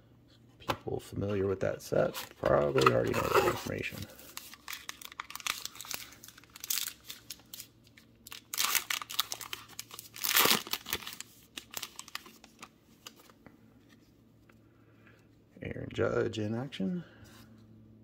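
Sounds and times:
foil wrapper tearing and crumpling: 3.2s - 13.2s.

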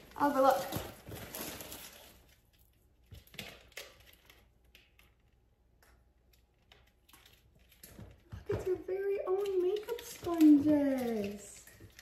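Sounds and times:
plastic packaging crinkling: 0.0s - 5.1s
faint clicks and rustles: 0.0s - 12.0s.

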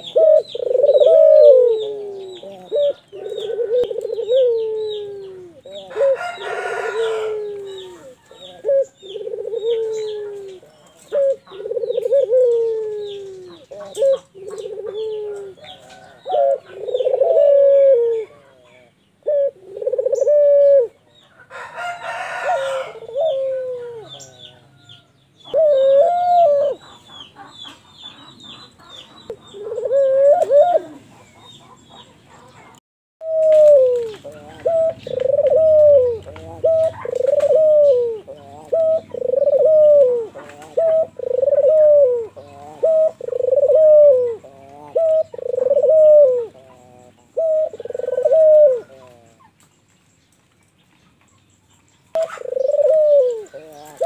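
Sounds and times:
dove cooing: 0.0s - 49.6s, 52.1s - 54.0s
rooster crowing: 5.8s - 8.6s, 21.4s - 25.1s.

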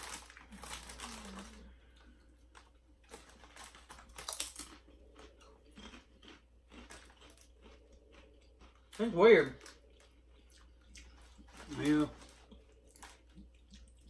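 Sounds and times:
foil chip bag crinkling: 0.0s - 4.8s, 11.1s - 13.6s
chips crunching: 0.0s - 14.0s.

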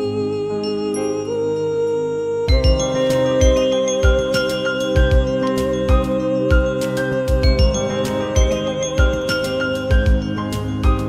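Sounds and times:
melody of short high notes: 0.4s - 11.0s
held tone: 0.5s - 11.0s
deep beat: 2.5s - 11.0s.

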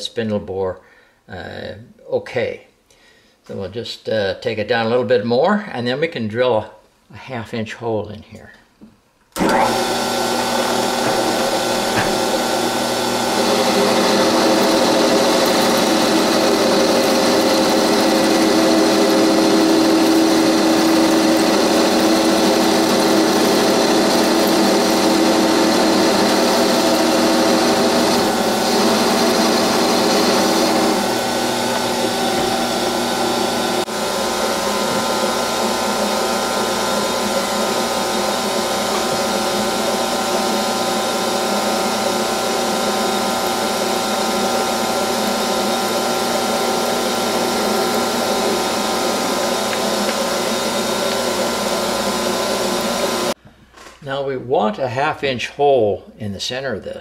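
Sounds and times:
drill boring into spinning metal: 9.4s - 53.4s
metal lathe whining: 9.4s - 53.4s.

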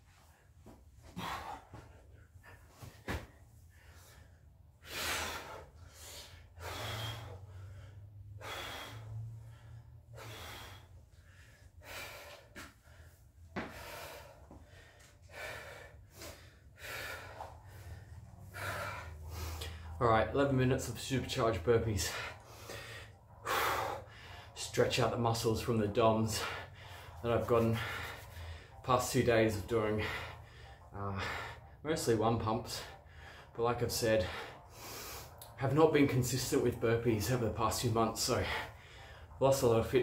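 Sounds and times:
man gasping for breath: 3.8s - 20.0s.

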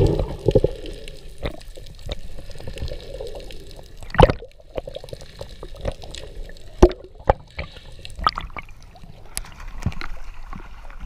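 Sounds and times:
underwater gurgling: 0.0s - 11.0s
water sloshing and splashing: 0.0s - 11.0s
underwater clicks and knocks: 4.0s - 5.0s.

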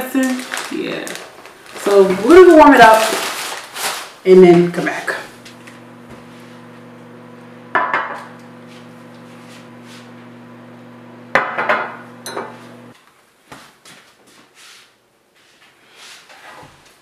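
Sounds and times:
paper wrappers rustling: 0.0s - 5.3s.

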